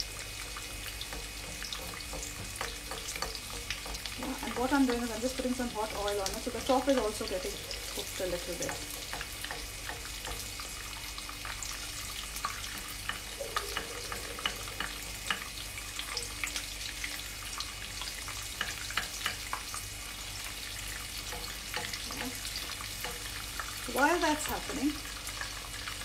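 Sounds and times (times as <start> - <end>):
fish sizzling in hot oil: 0.0 - 26.0
oil crackling and popping: 0.0 - 26.0.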